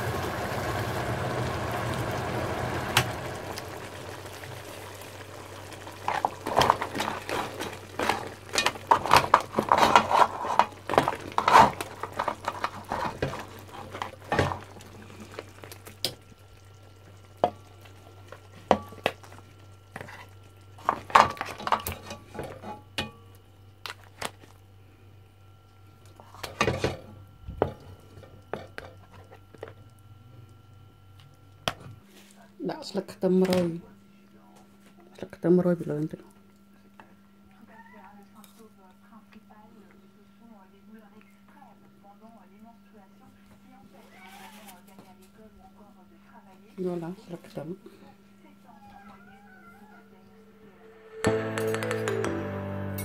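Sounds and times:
food sizzling in a pot: 0.0s - 23.1s
utensil scraping and knocking pot: 5.8s - 14.7s.

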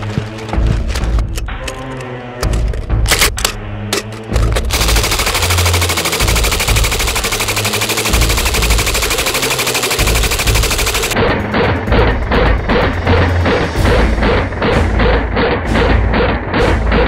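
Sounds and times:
suppressed machine gun firing: 4.7s - 11.2s.

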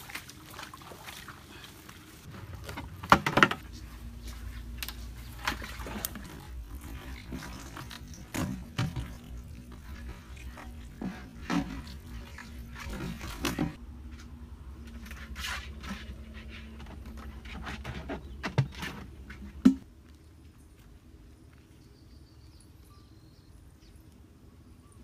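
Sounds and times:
plastic jug knocking and scraping: 2.3s - 3.8s, 5.3s - 13.8s, 15.0s - 19.8s.

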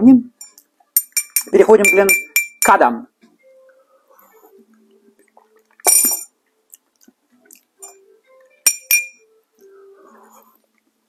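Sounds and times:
glassware clinking: 0.4s - 2.8s, 5.8s - 6.3s, 7.8s - 8.0s, 8.6s - 9.3s.

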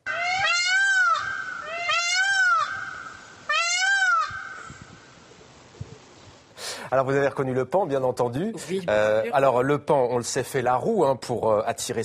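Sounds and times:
peacock calling: 0.0s - 5.2s.

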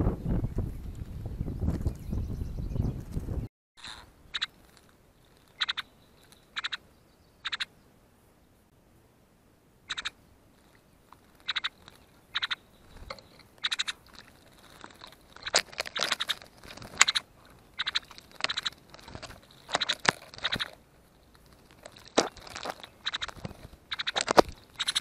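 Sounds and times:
bird splashing in water: 10.6s - 25.0s.

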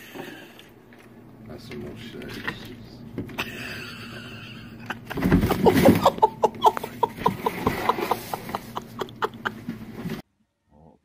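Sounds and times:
person laughing: 3.4s - 10.2s.

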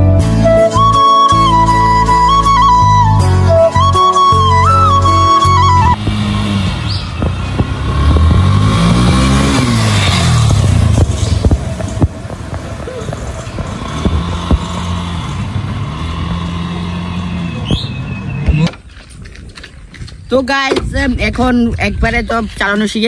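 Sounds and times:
small motorcycle passing: 4.3s - 19.0s.

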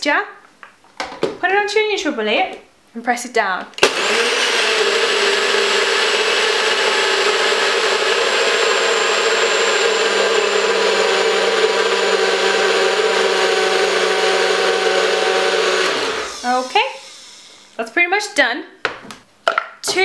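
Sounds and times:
blender motor whine: 3.8s - 17.8s.

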